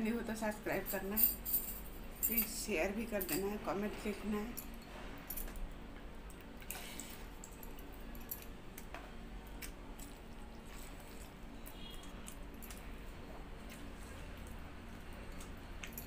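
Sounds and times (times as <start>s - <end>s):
steady low hum: 0.0s - 16.0s
moist chewing and squishing: 8.7s - 16.0s.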